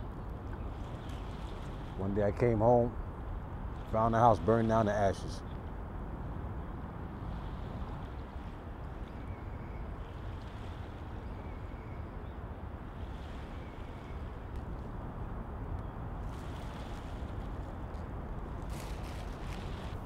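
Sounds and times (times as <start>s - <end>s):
wind: 0.0s - 20.0s.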